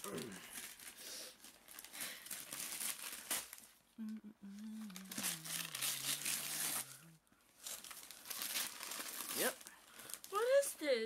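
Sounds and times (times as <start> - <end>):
wrapping paper crinkling and tearing: 0.0 - 3.8, 4.6 - 11.0
person humming a long low note: 4.0 - 7.2.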